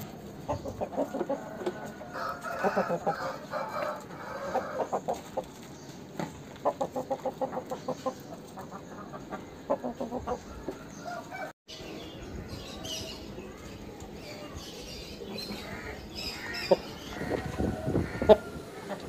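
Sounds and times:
rooster clucking: 0:00.4 - 0:05.6, 0:06.6 - 0:11.5, 0:15.6 - 0:19.0.

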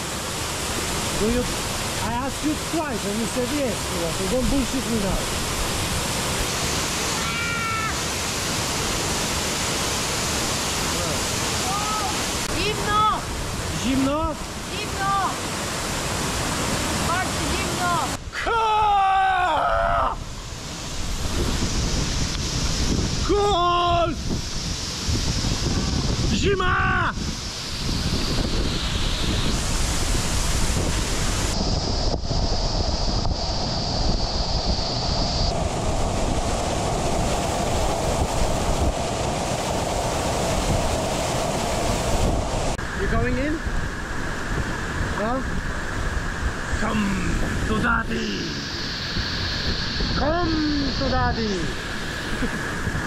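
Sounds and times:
waterfall rushing: 0:00.0 - 0:53.0
waterfall pouring into pool: 0:00.2 - 0:15.3
high-pitched voice crying out: 0:07.2 - 0:08.0, 0:18.4 - 0:20.2
person shouting: 0:07.2 - 0:08.0, 0:11.6 - 0:12.2, 0:17.8 - 0:20.2, 0:23.3 - 0:24.2, 0:26.4 - 0:27.1.

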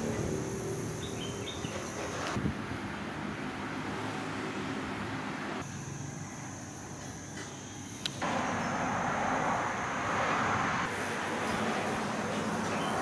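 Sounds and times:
hiss: 0:05.6 - 0:13.0.

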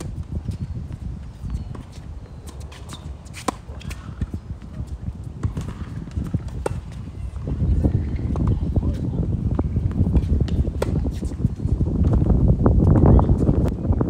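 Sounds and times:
footsteps on hard court: 0:00.0 - 0:13.5
racket hitting tennis ball: 0:01.7 - 0:07.0.

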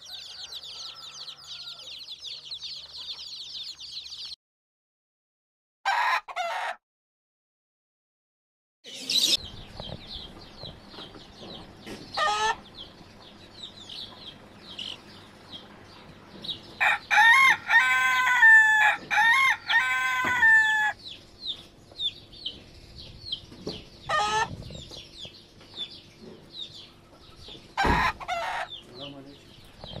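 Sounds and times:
rooster crowing: 0:00.0 - 0:02.8, 0:05.9 - 0:06.8, 0:16.8 - 0:21.0
chickens chirping: 0:00.0 - 0:04.4, 0:08.9 - 0:30.0.

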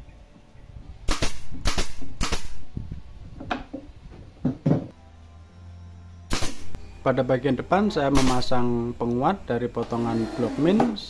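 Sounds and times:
nail gun shots: 0:01.1 - 0:02.6, 0:06.3 - 0:06.8, 0:08.1 - 0:08.6.

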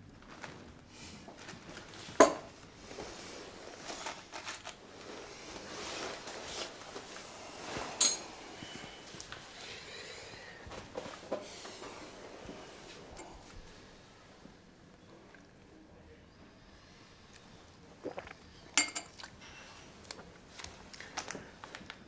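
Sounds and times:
clothing and paper rustling: 0:00.0 - 0:14.6
cup and saucer clinking: 0:18.8 - 0:19.2.

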